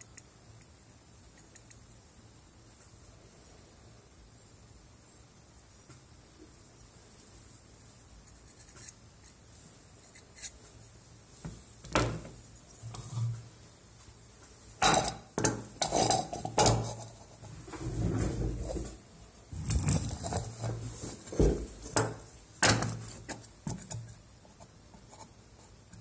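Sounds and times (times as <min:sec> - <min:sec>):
objects clattering on a bench: 0:11.5 - 0:12.4, 0:14.8 - 0:17.0.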